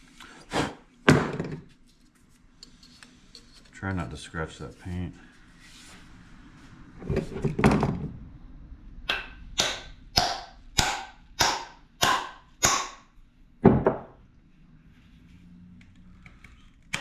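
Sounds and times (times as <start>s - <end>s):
hammer striking wooden wedge: 9.1s - 14.2s.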